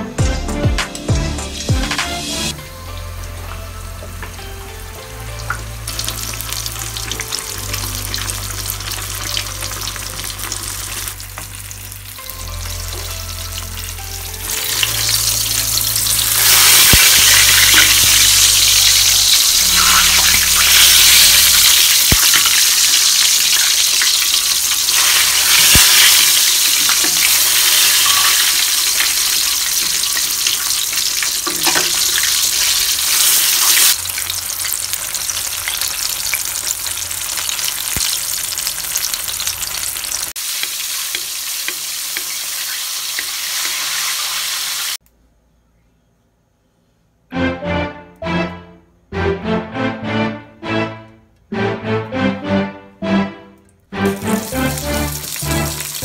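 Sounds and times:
background music bass notes: 0:00.0 - 0:39.1, 0:47.3 - 0:56.0
fish frying in hot oil: 0:05.2 - 0:12.2, 0:14.4 - 0:45.0.

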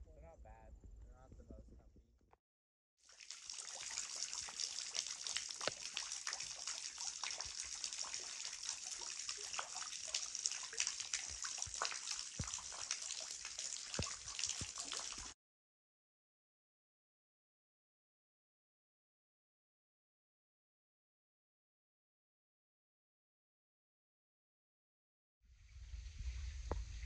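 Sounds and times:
water splashing into pool: 0:03.1 - 0:15.4.

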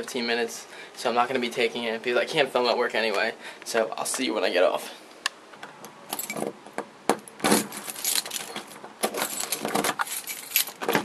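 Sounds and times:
keys jangling on a ring: 0:07.8 - 0:08.6, 0:09.2 - 0:10.8.

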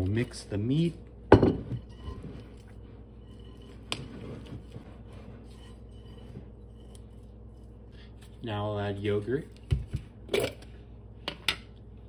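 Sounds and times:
glass bowl knocking on countertop: 0:01.3 - 0:01.8
spoon stirring thick mash: 0:01.7 - 0:09.7.

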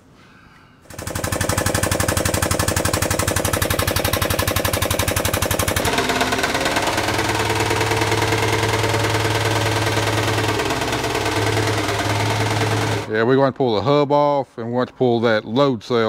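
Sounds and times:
air-powered jack pumping: 0:00.8 - 0:13.1
forklift engine running: 0:00.9 - 0:13.1.

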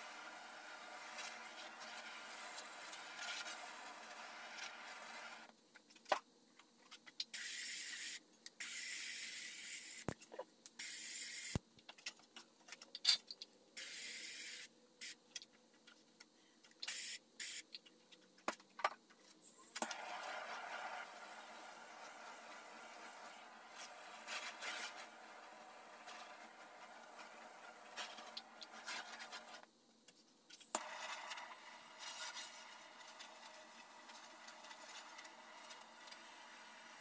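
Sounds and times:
spray gun hissing air bursts: 0:10.8 - 0:11.6.

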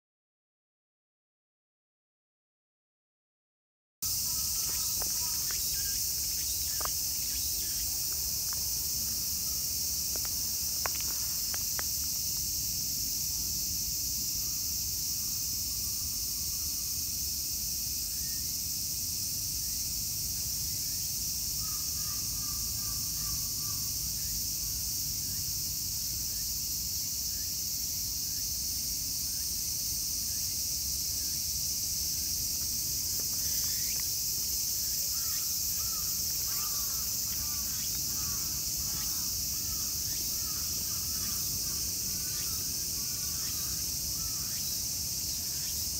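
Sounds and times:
insects shrilling: 0:04.0 - 0:13.4, 0:30.4 - 0:45.9.

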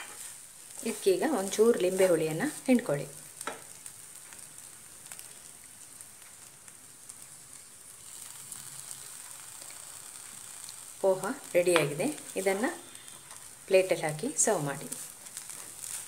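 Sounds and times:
faint sizzle in a pan: 0:00.0 - 0:16.0
spatula ticks: 0:03.4 - 0:13.6.

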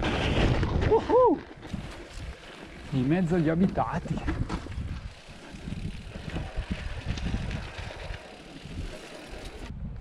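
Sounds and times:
mountain bike rolling rumble: 0:00.0 - 0:10.0
wind buffeting microphone: 0:00.0 - 0:10.0.

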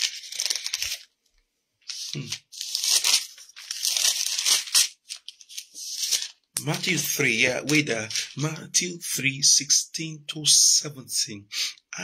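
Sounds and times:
paper pages rustling: 0:00.0 - 0:01.2, 0:01.8 - 0:08.4
person humming: 0:02.0 - 0:02.4.

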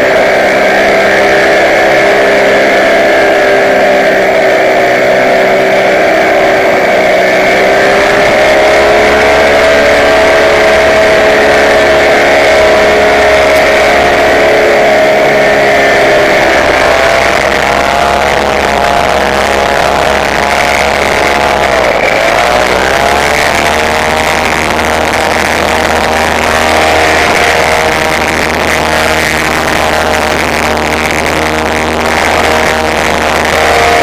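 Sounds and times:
paramotor engine running: 0:00.0 - 0:34.0.

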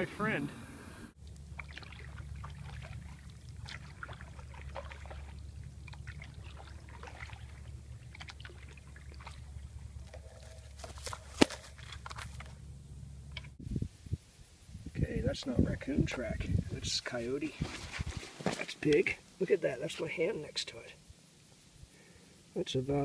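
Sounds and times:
low steady rumble: 0:00.0 - 0:18.3
paddle splashing and dripping: 0:01.2 - 0:12.6.

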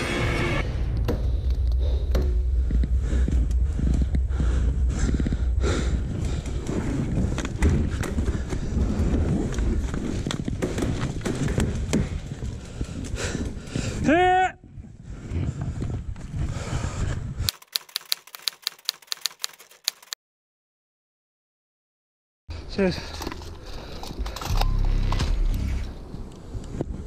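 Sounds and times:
heavy low rumble: 0:00.6 - 0:10.0, 0:24.0 - 0:27.0.

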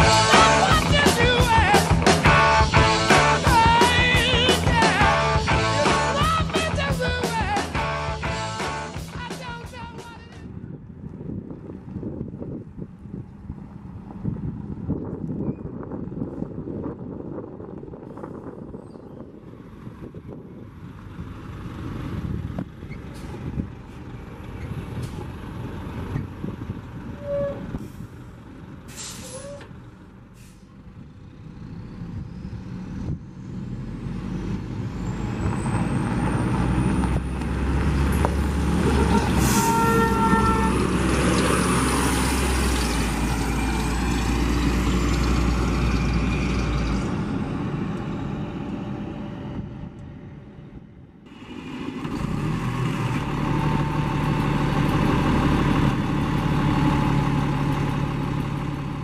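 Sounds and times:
bus diesel engine driving past: 0:00.0 - 0:09.3, 0:15.8 - 0:59.0
air brake hiss: 0:28.9 - 0:29.7, 0:30.3 - 0:30.8.

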